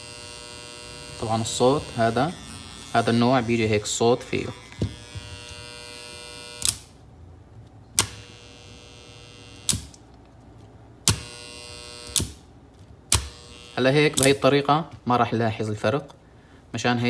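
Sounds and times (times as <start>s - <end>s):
relay electrical buzz: 0.0s - 7.1s, 7.9s - 10.2s, 11.0s - 14.9s
circuit breaker clicks: 6.6s - 6.9s, 7.9s - 8.5s, 9.6s - 10.0s, 11.0s - 11.4s, 12.0s - 12.4s, 13.1s - 13.5s, 14.1s - 14.5s.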